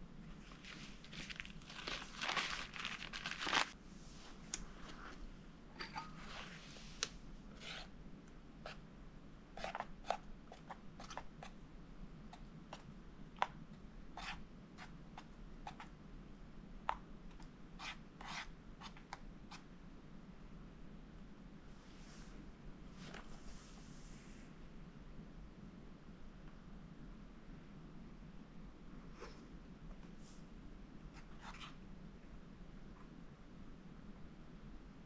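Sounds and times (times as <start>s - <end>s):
handling rustling and scraping: 0.3s - 7.9s.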